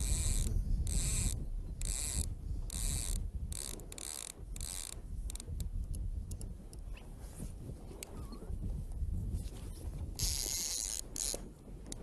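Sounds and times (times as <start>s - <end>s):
fishing reel ratchet clicking: 0.0s - 6.8s, 10.2s - 12.0s.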